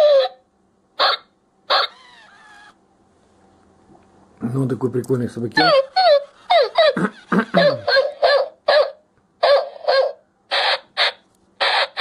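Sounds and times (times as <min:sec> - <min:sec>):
toy dog barking through speaker: 0:00.0 - 0:00.4, 0:01.0 - 0:02.7, 0:05.6 - 0:12.0.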